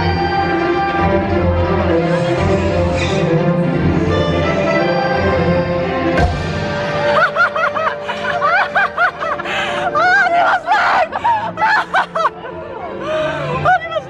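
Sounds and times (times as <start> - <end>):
orchestral music: 0.0 - 14.0.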